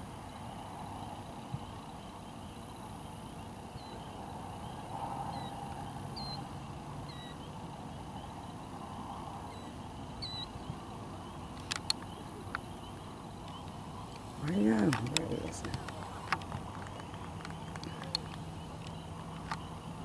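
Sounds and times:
faint high chirps: 0.3s - 15.5s
sharp clicks: 11.6s - 12.7s, 13.4s - 19.7s.

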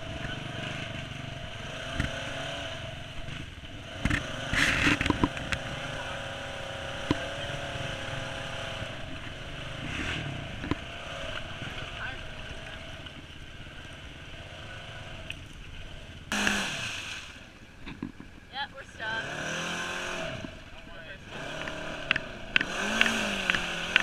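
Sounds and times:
knocks and rattles over bumps: 0.0s - 14.0s, 17.6s - 18.5s
off-road vehicle engine running: 0.0s - 24.0s.

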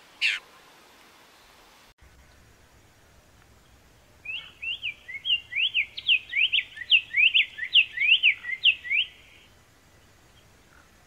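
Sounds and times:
bird singing whistled notes: 4.2s - 9.5s.

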